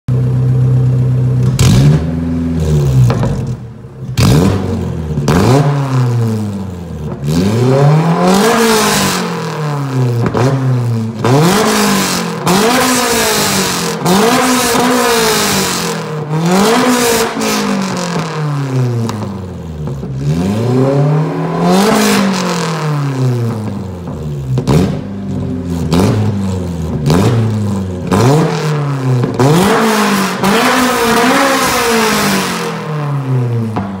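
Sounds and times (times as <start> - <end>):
car engine revving: 0.1 - 34.0.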